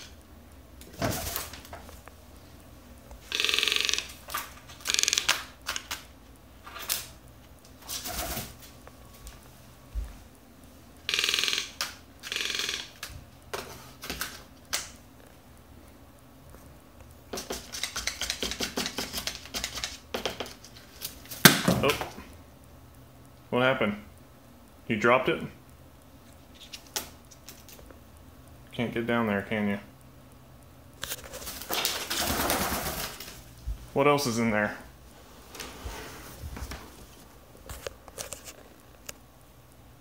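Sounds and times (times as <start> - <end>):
paper and plastic rustling: 31.0 - 33.5.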